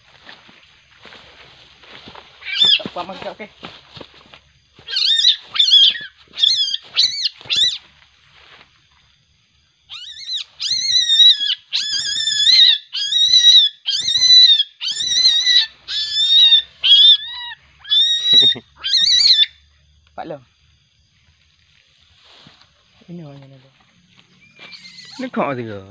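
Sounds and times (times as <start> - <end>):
young animal shrill cries: 2.4 - 2.9, 4.8 - 7.8, 9.9 - 19.6, 24.4 - 25.4.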